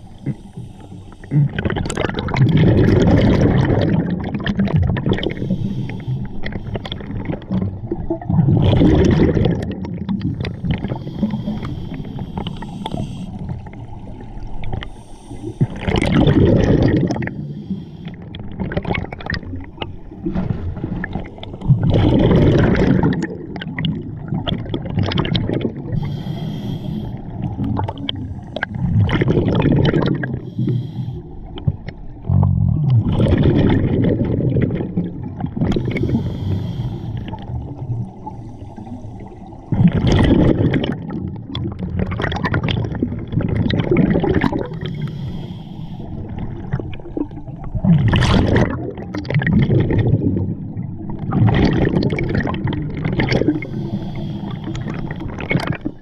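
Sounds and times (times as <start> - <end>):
diver inhaling through regulator: 0.0 - 1.9, 5.2 - 7.3, 10.3 - 13.9, 14.7 - 18.6, 25.8 - 29.4, 30.1 - 31.4, 35.7 - 37.5, 44.5 - 46.6, 53.3 - 56.0
exhaled bubbles gurgling: 0.0 - 56.0.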